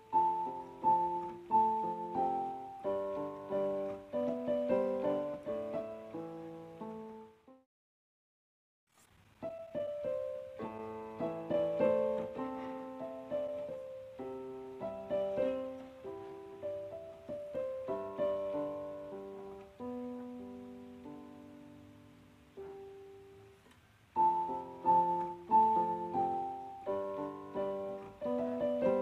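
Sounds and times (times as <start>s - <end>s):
slow piano notes and chords: 0.0s - 7.6s, 9.3s - 29.0s.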